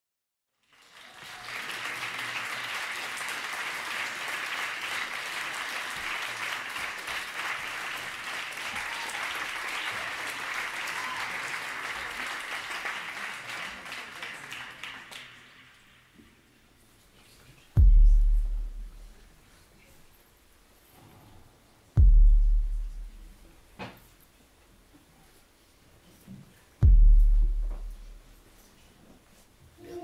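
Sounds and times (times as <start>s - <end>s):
audience applauding: 0.6s - 15.8s.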